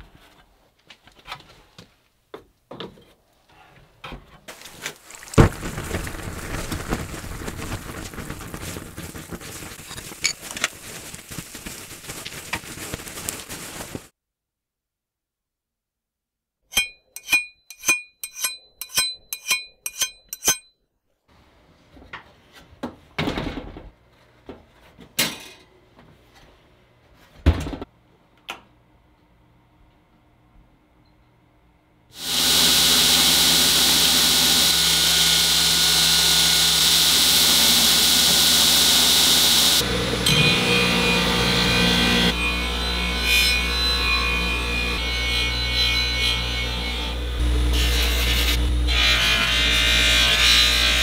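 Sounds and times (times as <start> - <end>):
dense crackling hiss: 4.6 - 14.1
file scraping on steel: 16.7 - 20.7.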